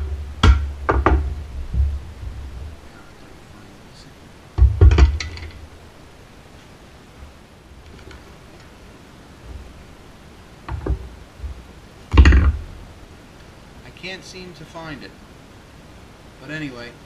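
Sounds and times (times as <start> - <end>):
metal parts knocking on workbench: 0.0 - 2.4, 4.6 - 5.6, 12.1 - 12.6
loud thump: 0.0 - 2.8, 4.6 - 5.6, 10.7 - 12.8.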